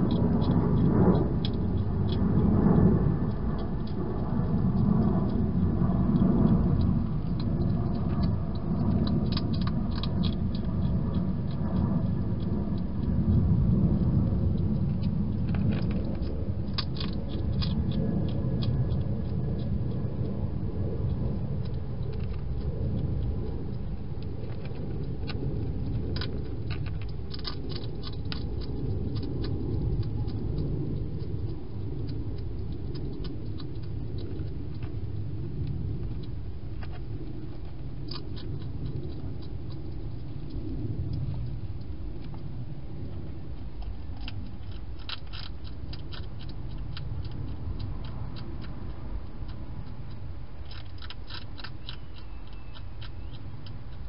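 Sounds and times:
hedgehog chewing clicks: 0:00.0 - 0:54.0
low rumble: 0:00.0 - 0:54.0.

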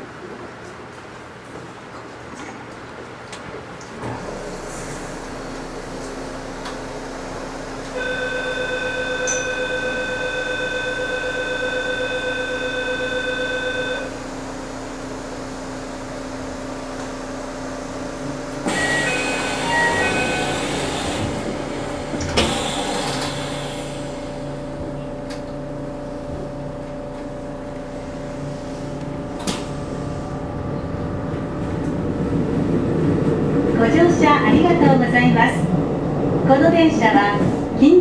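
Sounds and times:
train electric hum: 0:00.0 - 0:38.0
electronic door chime: 0:08.0 - 0:14.1, 0:18.7 - 0:21.0.

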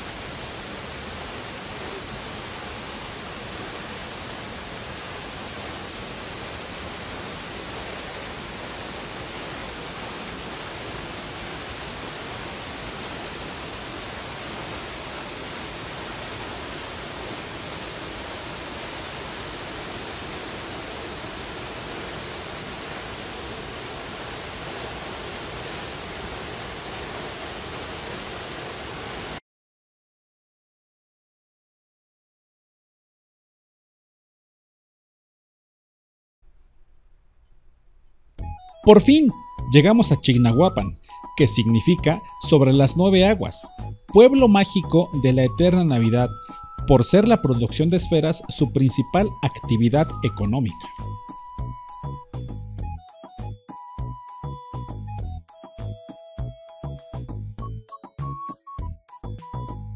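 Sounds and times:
waterfall rushing: 0:00.0 - 0:29.4, 0:43.6 - 0:52.2.

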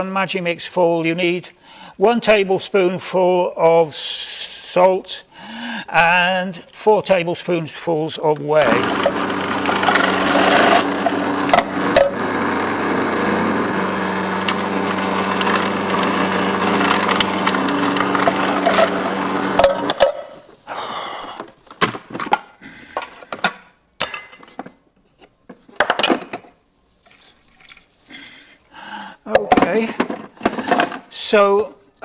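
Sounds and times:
food processor motor hum: 0:08.6 - 0:20.1
cabbage crunching: 0:14.2 - 0:20.4.

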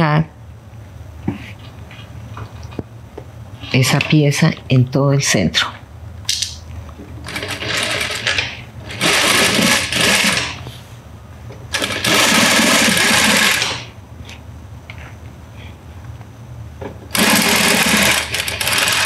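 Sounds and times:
sewing machine stitching: 0:07.2 - 0:10.6, 0:11.7 - 0:13.9, 0:17.1 - 0:19.0.

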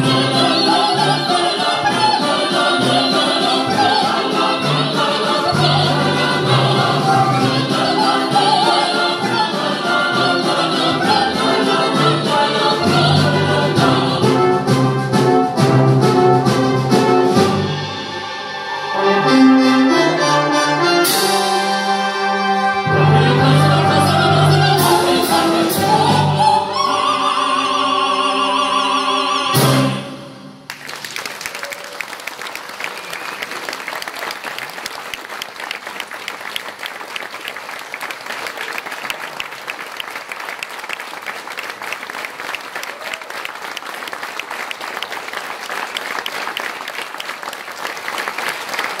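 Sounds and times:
singers with choir and wind band: 0:00.0 - 0:30.7
audience applause: 0:30.7 - 0:49.0.

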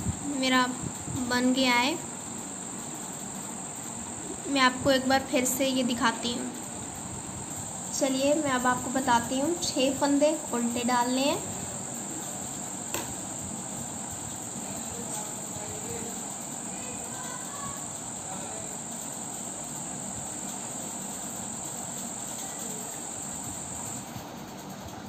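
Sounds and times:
sharp click: 0:12.9 - 0:13.2.

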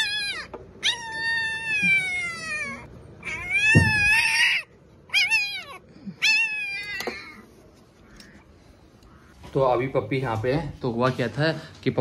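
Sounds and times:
puppy crying in high squeals: 0:00.0 - 0:07.4
dull bump: 0:03.7 - 0:04.2.

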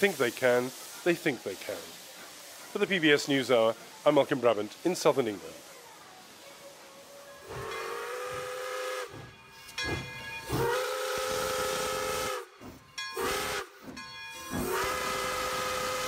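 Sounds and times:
steam hissing: 0:00.0 - 0:16.0
steam locomotive whistle: 0:07.4 - 0:16.0.

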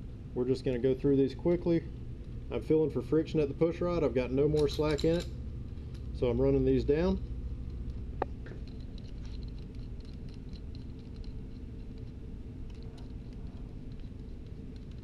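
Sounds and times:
low hum: 0:00.0 - 0:15.0
metallic clicking of nuts: 0:04.4 - 0:05.4.

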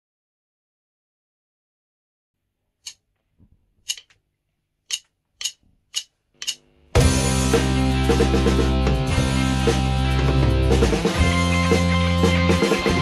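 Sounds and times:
drumsticks clicked together: 0:03.9 - 0:04.2, 0:04.9 - 0:06.6.

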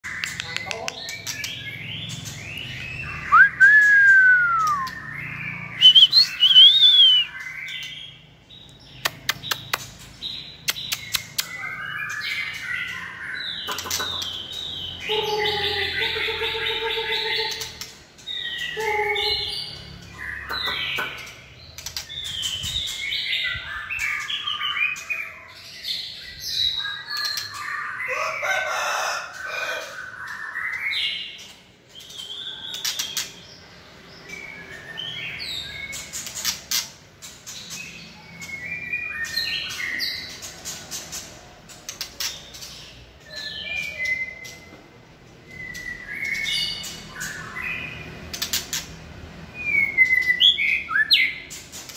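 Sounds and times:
bird singing whistled phrases: 0:02.7 - 0:07.8, 0:45.4 - 0:46.8
sharp taps in cage: 0:09.0 - 0:10.0.

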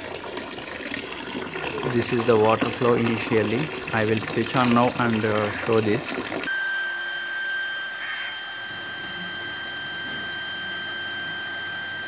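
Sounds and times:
pump hiss: 0:00.0 - 0:06.5
water pump motor whine: 0:00.0 - 0:12.0.

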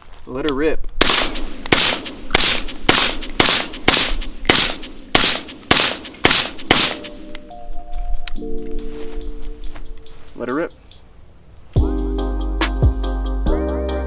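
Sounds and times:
suppressed rifle shots: 0:01.0 - 0:07.5
music: 0:06.8 - 0:11.0, 0:11.8 - 0:14.0.

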